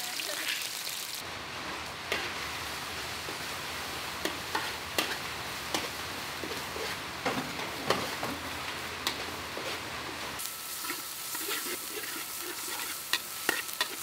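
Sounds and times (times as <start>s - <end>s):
paste sizzling in hot oil: 0.0s - 1.2s, 2.0s - 7.1s, 10.4s - 14.0s.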